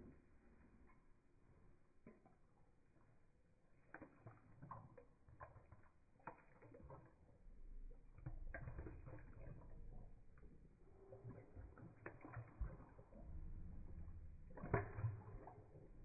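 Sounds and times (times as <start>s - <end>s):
dog lapping water from bowl: 0.0s - 16.0s
low rumble: 12.6s - 16.0s.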